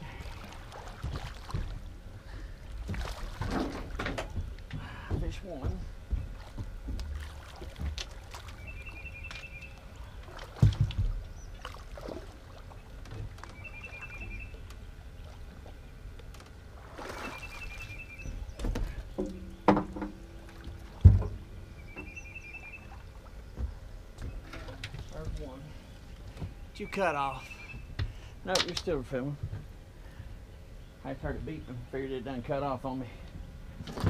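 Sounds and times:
gear knocking in aluminum boat: 0:02.8 - 0:09.7.

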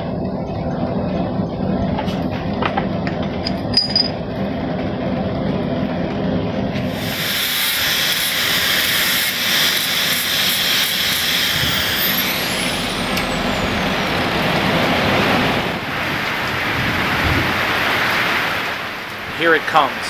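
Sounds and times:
angle grinder grinding steel: 0:06.9 - 0:15.8
heavy rain hissing: 0:06.9 - 0:20.0.

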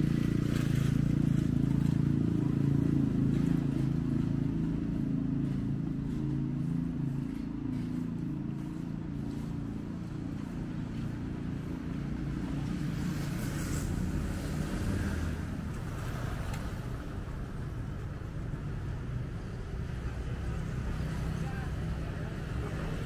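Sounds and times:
vehicle engine rumble: 0:00.0 - 0:23.0.

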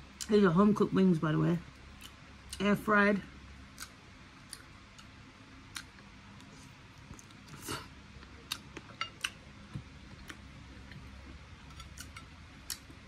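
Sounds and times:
crunchy chewing: 0:05.7 - 0:13.0.

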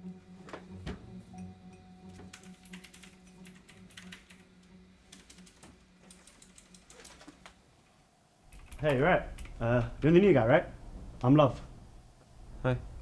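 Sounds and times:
keyboard typing: 0:02.1 - 0:07.6, 0:08.5 - 0:09.6.

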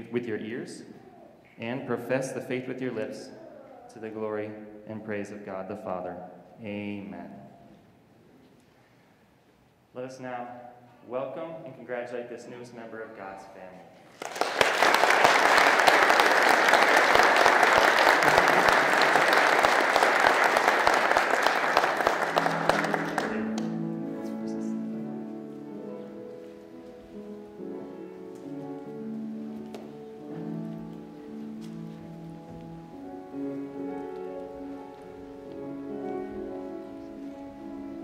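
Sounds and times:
congregation applauding: 0:14.1 - 0:24.8
slow soft instrumental music: 0:21.8 - 0:38.0.

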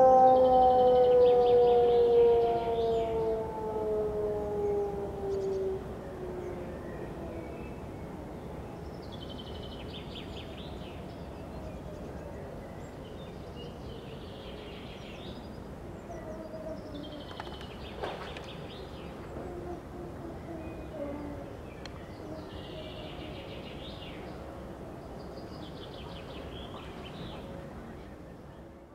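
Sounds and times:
distant wavering siren: 0:00.0 - 0:08.9
songbirds trilling: 0:00.0 - 0:28.7.

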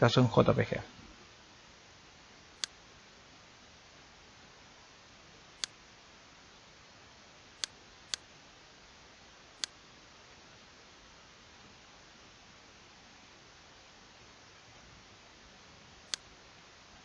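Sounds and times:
faint steady hiss: 0:00.0 - 0:17.0
computer mouse clicks: 0:02.6 - 0:02.8, 0:16.1 - 0:16.3.

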